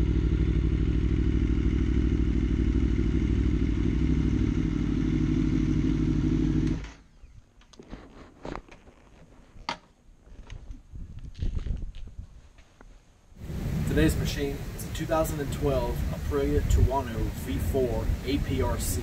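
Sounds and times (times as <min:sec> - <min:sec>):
motorcycle engine idling: 0:00.0 - 0:07.2.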